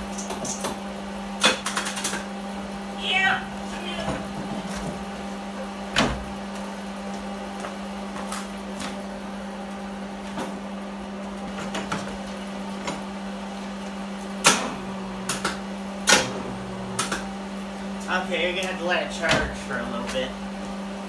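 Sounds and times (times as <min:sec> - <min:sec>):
battery charger humming: 0:14.3 - 0:18.1.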